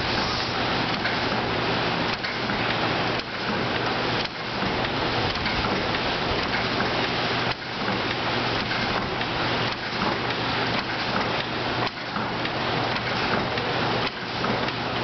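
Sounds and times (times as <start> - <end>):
forge bellows blowing air: 0.0 - 2.1.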